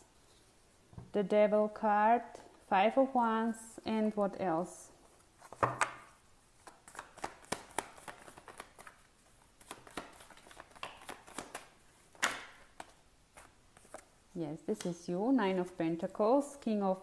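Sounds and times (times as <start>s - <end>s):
cards being shuffled: 5.1s - 14.1s.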